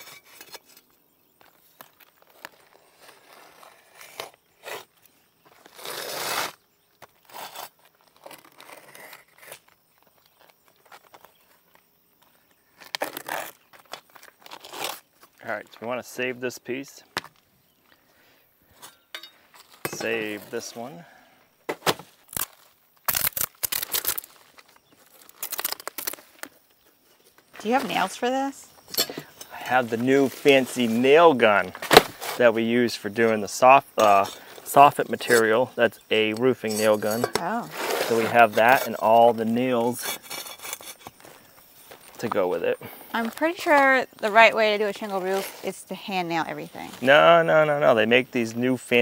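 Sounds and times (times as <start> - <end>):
scraping and crinkling: 0.0 - 15.8, 21.7 - 32.7, 36.2 - 42.4, 43.2 - 45.9
knife cutting roofing shingle: 3.0 - 5.0, 5.6 - 9.7, 36.3 - 41.2.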